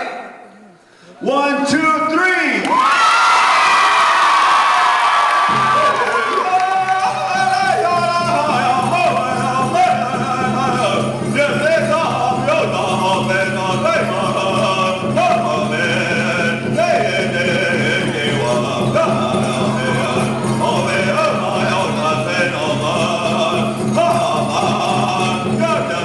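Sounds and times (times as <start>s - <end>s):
man singing: 5.7s - 26.0s.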